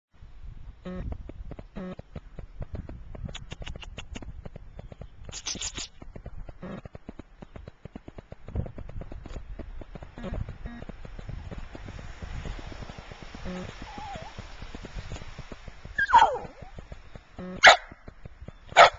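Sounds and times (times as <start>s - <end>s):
footsteps crunching through snow: 8.5s - 17.9s.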